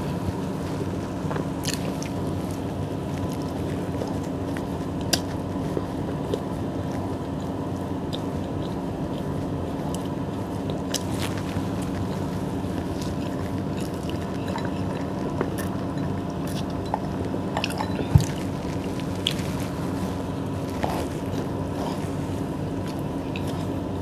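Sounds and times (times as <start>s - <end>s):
chewing bread: 0.0s - 24.0s
steady hum: 0.0s - 24.0s.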